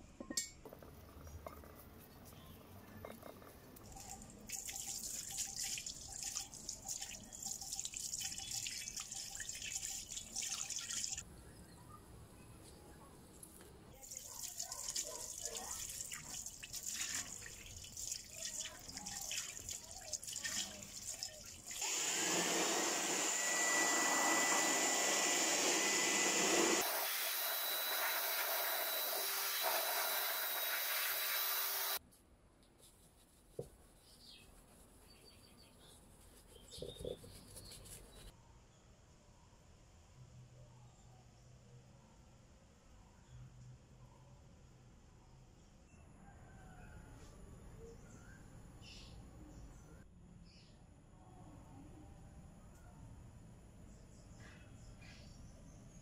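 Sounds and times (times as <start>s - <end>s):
soapy water splashing: 3.8s - 11.2s, 14.0s - 21.8s
brush scrubbing wheel: 14.1s - 32.0s, 32.8s - 38.3s.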